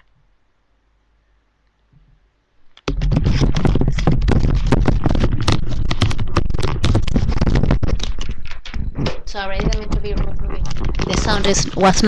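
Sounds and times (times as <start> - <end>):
microphone handling rustling: 2.8 - 12.0.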